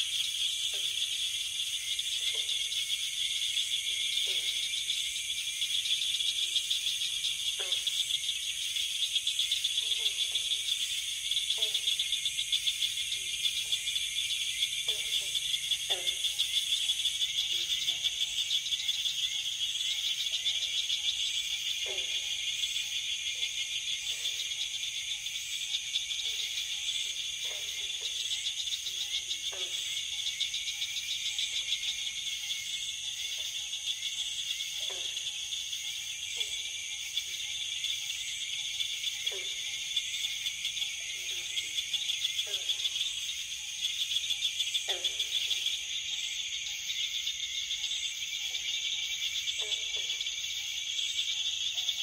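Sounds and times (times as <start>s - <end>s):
frog calls: 0.0s - 52.0s
insects trilling: 0.0s - 52.0s.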